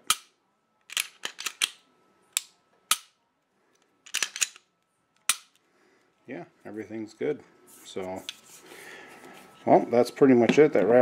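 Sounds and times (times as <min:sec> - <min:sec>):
pistol slide and trigger clicks: 0:00.9 - 0:03.2, 0:04.1 - 0:05.6.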